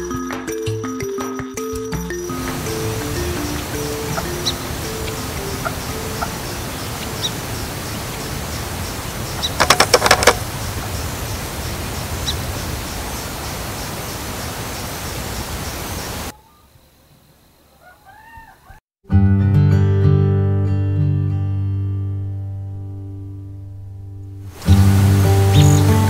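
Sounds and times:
steady rushing noise: 2.4s - 16.3s, 24.5s - 26.0s.

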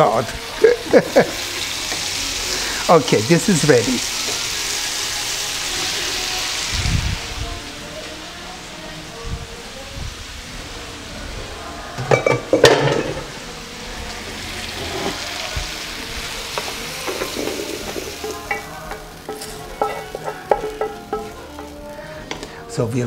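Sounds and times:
zucchini sizzling in oil: 0.0s - 22.5s
clinks and scrapes into metal bowl: 14.8s - 15.2s
wooden spoon knocking pan: 17.1s - 21.7s.

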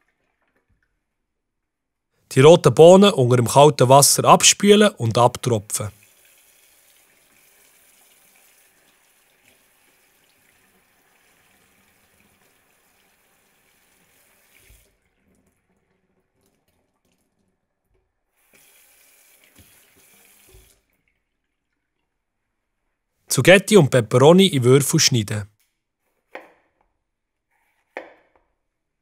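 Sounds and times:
tap water running into sink: 5.9s - 22.2s.

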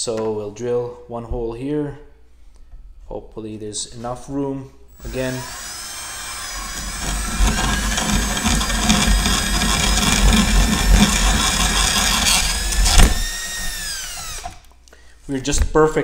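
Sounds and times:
power drill whining: 4.9s - 14.7s
plastic being cut: 5.0s - 14.7s.

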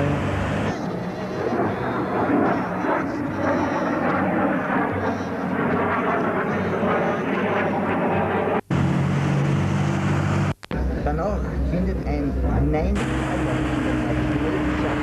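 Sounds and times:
low mechanical drone: 0.0s - 15.0s
steady higher hum: 0.0s - 15.0s
rushing noise: 6.2s - 15.0s.

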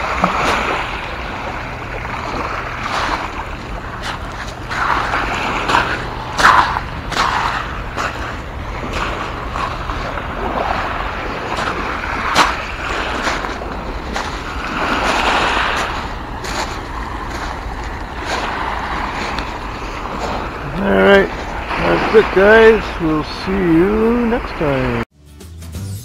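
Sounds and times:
waves lapping on pebble shore: 0.0s - 25.0s
footsteps crunching on stones: 11.5s - 20.7s.

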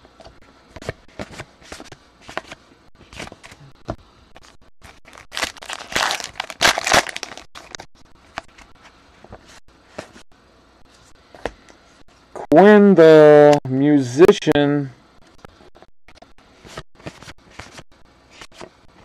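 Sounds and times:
wrapper tearing and crinkling: 4.8s - 7.8s.

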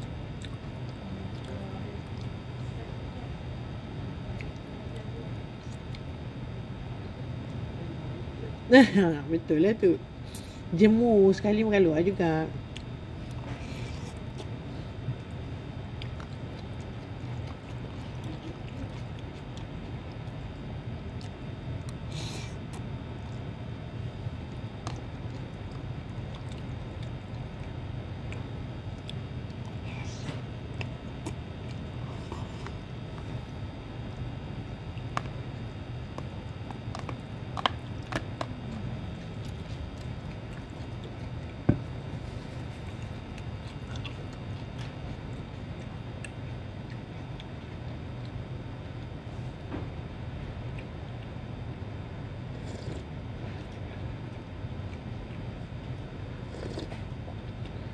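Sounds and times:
low room hum: 0.0s - 57.9s.

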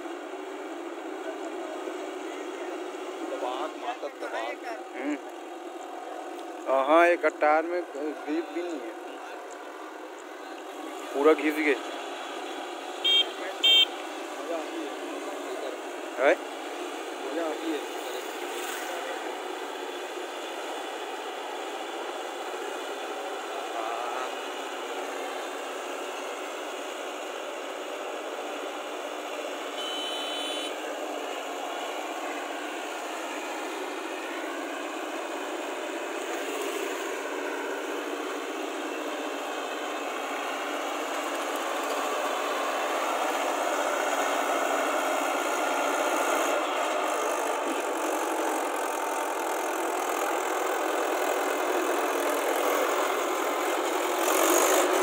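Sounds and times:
tractor diesel engine running: 0.0s - 55.0s
wheels churning through mud: 30.9s - 55.0s.

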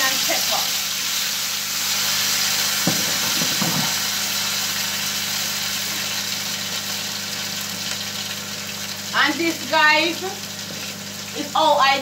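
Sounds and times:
vegetables sizzling in hot oil: 0.0s - 12.0s
brief knock: 2.9s - 3.9s.

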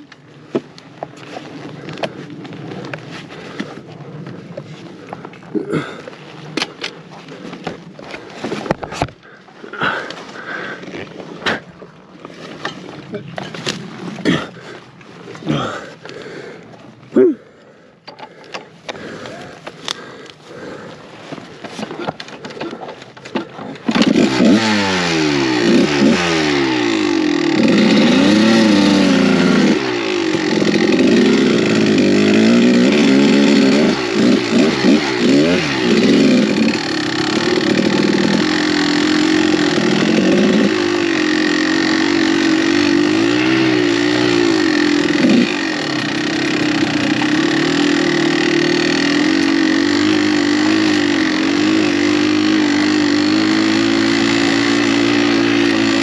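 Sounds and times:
dirt bike engine revving: 21.8s - 56.0s.

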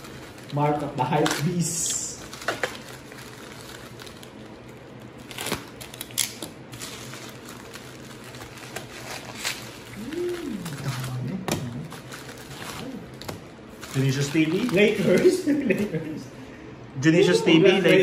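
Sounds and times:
wrappers crinkling: 0.0s - 16.1s
low steady hum: 0.0s - 18.0s.

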